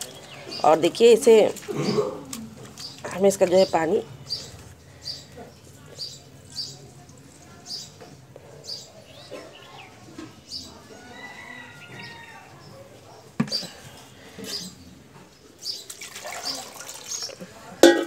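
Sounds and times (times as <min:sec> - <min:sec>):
faint birds chirping: 0:00.0 - 0:17.7
water dribbling: 0:15.7 - 0:18.0
water pouring into bowl: 0:15.9 - 0:18.0
steel bowl knocking on stone floor: 0:17.8 - 0:18.0.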